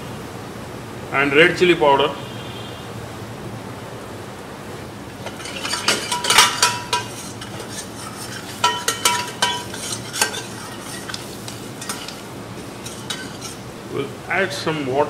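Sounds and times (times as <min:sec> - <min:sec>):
onions frying in oil: 0:04.8 - 0:13.9
metal ladle clinking on saucepan: 0:05.2 - 0:13.7.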